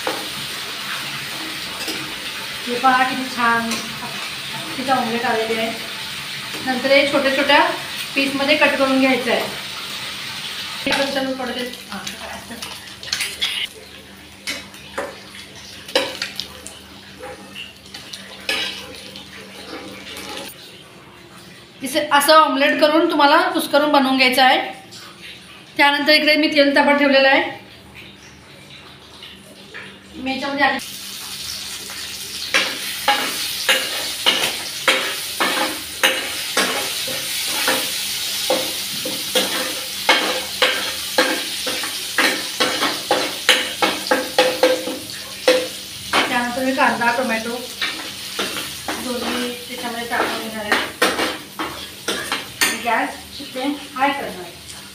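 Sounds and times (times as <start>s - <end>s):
hot oil sizzling: 0.0s - 20.6s, 30.2s - 54.9s.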